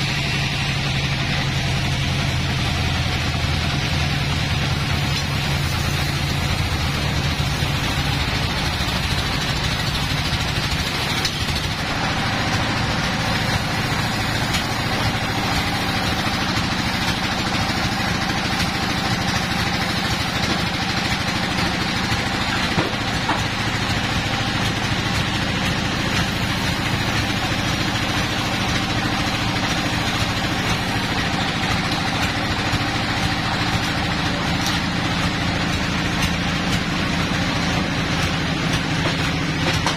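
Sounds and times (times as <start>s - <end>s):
sawmill machinery humming: 0.0s - 39.9s.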